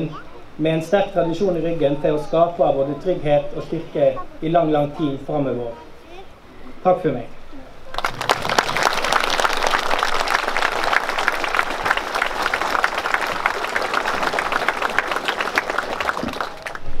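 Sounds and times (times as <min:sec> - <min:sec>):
audience applauding: 0:07.9 - 0:17.0.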